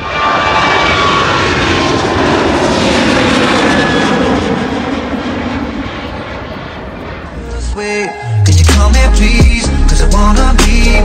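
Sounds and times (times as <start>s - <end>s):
jet engines roaring at takeoff: 0.0s - 8.4s.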